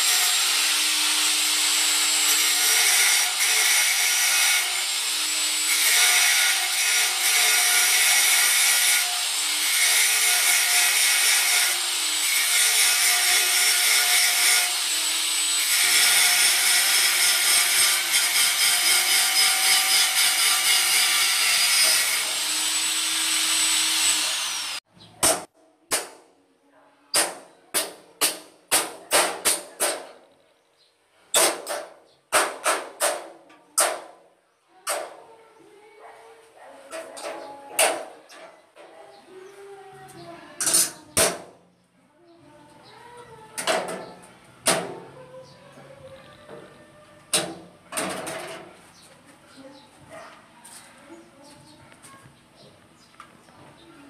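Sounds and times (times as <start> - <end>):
angle grinder grinding metal: 0.0 - 24.9.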